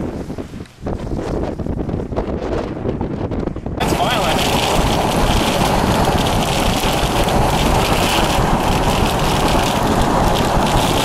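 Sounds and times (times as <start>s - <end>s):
vehicle driving on wet road: 3.8s - 11.0s.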